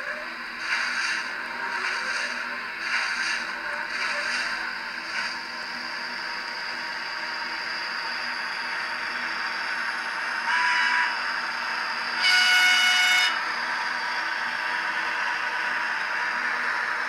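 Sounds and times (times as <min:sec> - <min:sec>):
model locomotive running sound: 0:00.0 - 0:17.0
model train horn: 0:10.4 - 0:11.2, 0:12.2 - 0:13.4.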